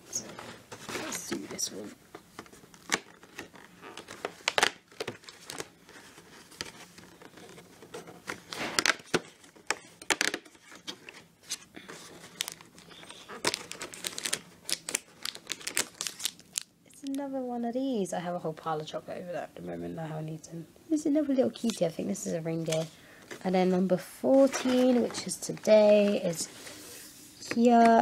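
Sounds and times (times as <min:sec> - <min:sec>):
cardboard tearing and crinkling: 0:02.3 - 0:16.7.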